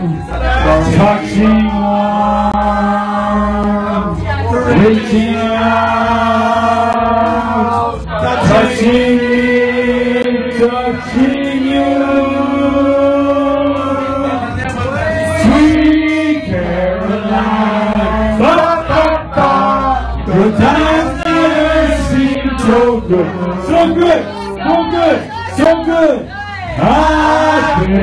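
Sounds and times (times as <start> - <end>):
voices singing long notes: 0.0 - 28.0.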